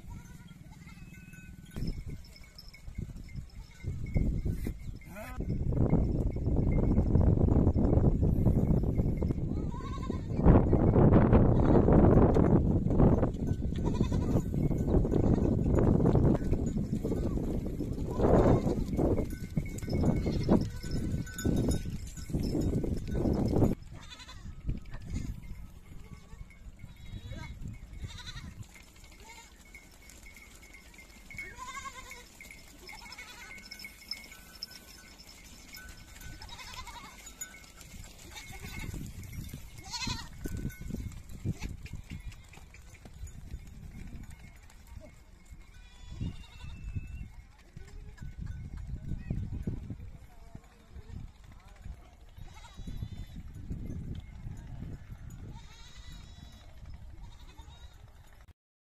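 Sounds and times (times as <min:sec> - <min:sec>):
goats bleating: 0:00.0 - 0:01.2, 0:09.6 - 0:10.4, 0:13.7 - 0:14.5, 0:23.9 - 0:24.5, 0:26.0 - 0:28.6, 0:29.2 - 0:29.7, 0:31.4 - 0:33.9, 0:36.2 - 0:37.4, 0:38.2 - 0:39.0, 0:39.8 - 0:40.4, 0:52.4 - 0:53.4, 0:55.5 - 0:58.0
goats and sheep bleating: 0:00.0 - 0:01.6, 0:03.5 - 0:05.5, 0:09.5 - 0:10.5, 0:11.4 - 0:12.0, 0:13.7 - 0:15.7, 0:16.6 - 0:19.3, 0:19.9 - 0:21.7, 0:23.9 - 0:40.7, 0:41.4 - 0:42.9, 0:45.6 - 0:47.1, 0:52.3 - 0:53.6, 0:55.5 - 0:58.1.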